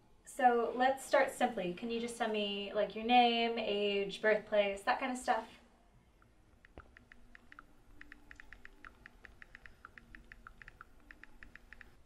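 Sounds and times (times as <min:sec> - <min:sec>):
tapping on smartphone screen: 0:06.6 - 0:12.0.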